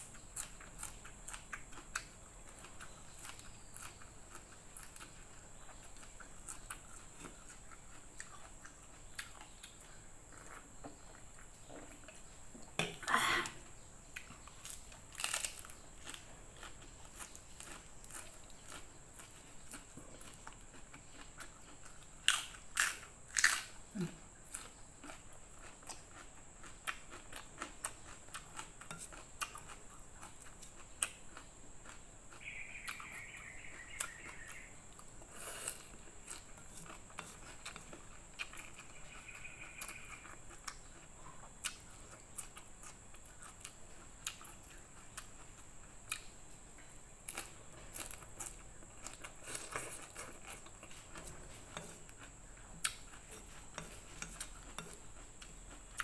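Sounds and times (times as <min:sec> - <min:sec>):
chewing and slurping noodles: 0:24.5 - 0:46.2, 0:47.3 - 0:56.0.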